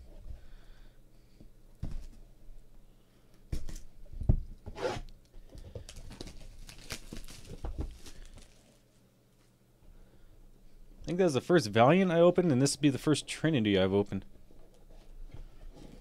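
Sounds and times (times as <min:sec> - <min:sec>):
cardboard tearing: 0:05.9 - 0:08.7
plastic wrapping crinkling: 0:05.9 - 0:09.0.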